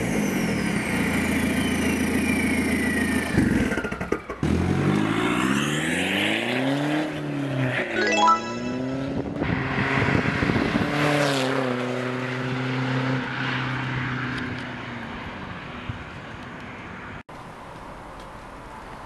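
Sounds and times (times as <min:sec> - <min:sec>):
car engine and exhaust drone: 0:00.0 - 0:08.0.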